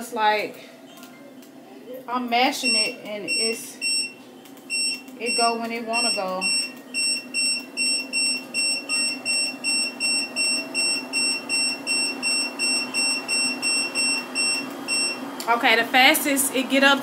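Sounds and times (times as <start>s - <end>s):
treadmill motor hum: 2.2s - 17.0s
treadmill beeping: 2.6s - 15.3s.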